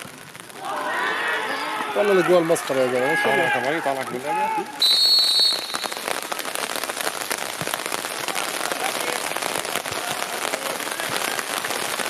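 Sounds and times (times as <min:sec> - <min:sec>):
steady rain: 0:00.0 - 0:12.0.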